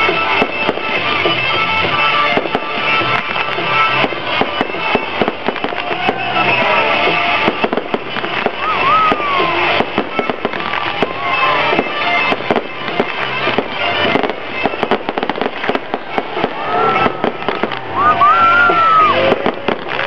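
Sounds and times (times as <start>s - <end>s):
fireworks bursting and crackling: 0.0s - 20.0s.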